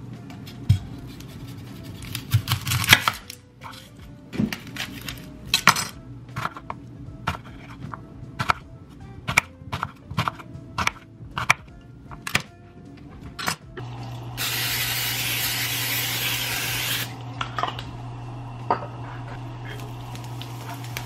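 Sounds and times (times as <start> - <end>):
background music: 0.0 - 21.0.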